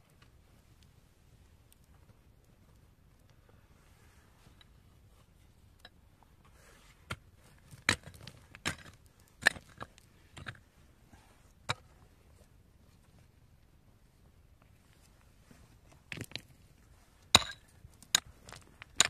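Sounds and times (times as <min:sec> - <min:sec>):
hand tool striking stony soil: 0:07.1 - 0:10.6, 0:17.3 - 0:19.0.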